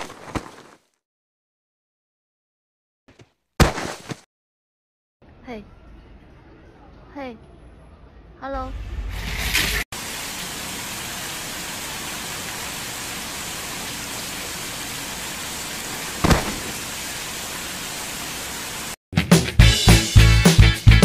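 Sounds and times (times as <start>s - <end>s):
heavy rain pouring on street: 10.0s - 19.0s
loud thud: 16.2s - 16.9s
upbeat music with drums and guitar: 19.2s - 21.0s.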